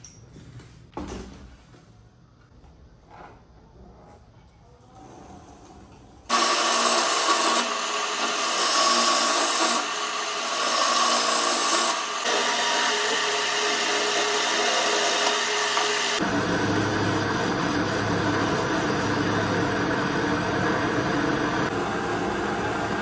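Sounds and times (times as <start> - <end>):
lathe humming: 6.3 - 23.0.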